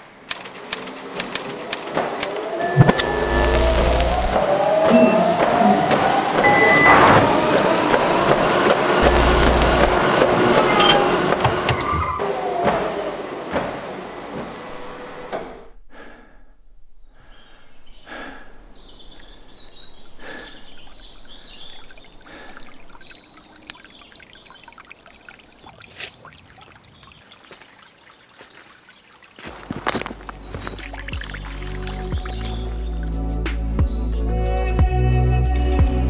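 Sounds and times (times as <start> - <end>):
loud noisy din: 2.6 - 13.3
bird calls: 16.8 - 34.2
stream trickling over stones: 19.1 - 33.4.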